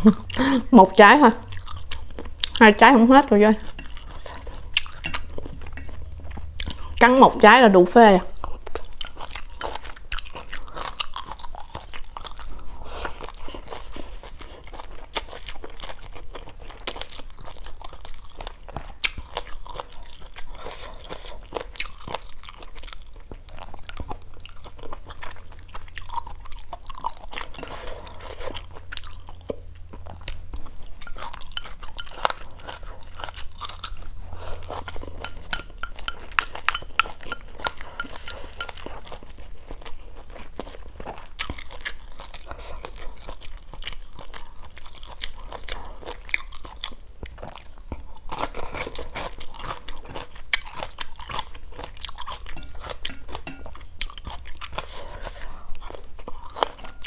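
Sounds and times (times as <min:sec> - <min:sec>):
chewing and crunching food: 0:00.0 - 0:57.0.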